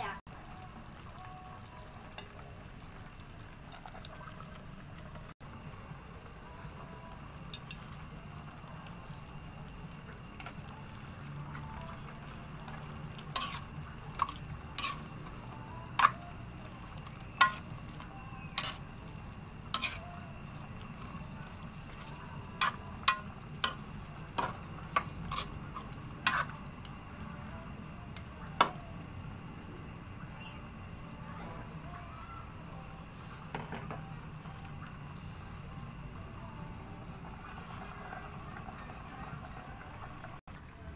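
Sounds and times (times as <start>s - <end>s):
spatula clinking in a wok: 12.7s - 16.4s, 17.1s - 18.9s, 19.7s - 20.2s, 22.6s - 25.6s, 26.2s - 27.0s.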